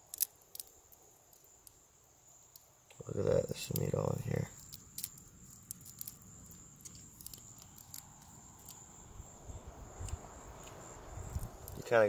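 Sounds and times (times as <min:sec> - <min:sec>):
crab shell cracking: 0:00.0 - 0:01.8, 0:04.5 - 0:08.8
night insects trilling: 0:00.0 - 0:12.0.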